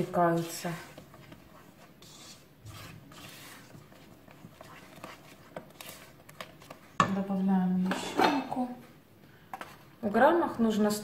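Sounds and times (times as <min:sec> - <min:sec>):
spatula scraping metal bowl: 0:00.0 - 0:06.3.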